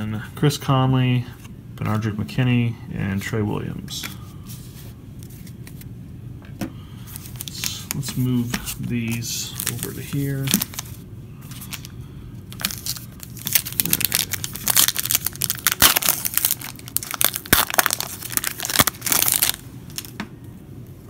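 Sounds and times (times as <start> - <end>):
foil wrappers crinkling: 7.0 - 20.2.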